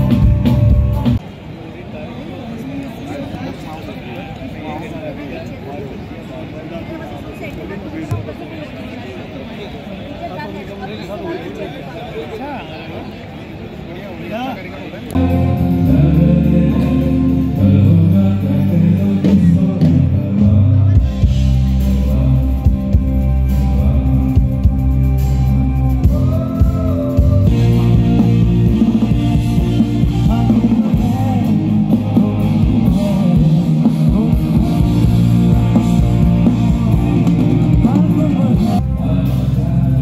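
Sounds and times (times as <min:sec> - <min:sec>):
drum kit: 0:00.0 - 0:01.2, 0:15.2 - 0:40.0
guitar: 0:00.0 - 0:01.2, 0:15.1 - 0:40.0
low bass notes: 0:00.0 - 0:01.2, 0:15.2 - 0:40.0
person singing: 0:15.2 - 0:40.0.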